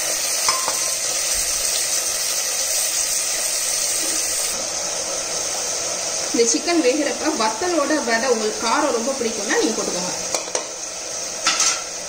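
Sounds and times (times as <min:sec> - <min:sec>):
food frying in oil: 0:00.0 - 0:12.0.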